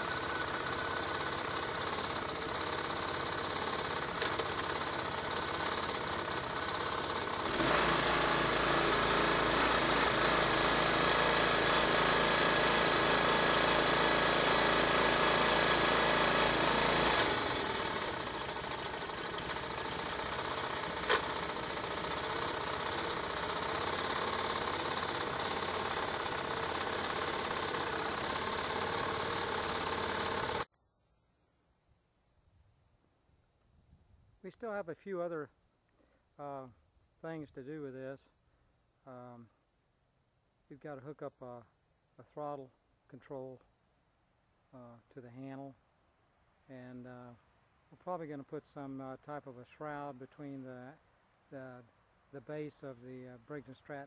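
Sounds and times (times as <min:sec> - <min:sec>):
small engine idling: 0:00.0 - 0:30.7.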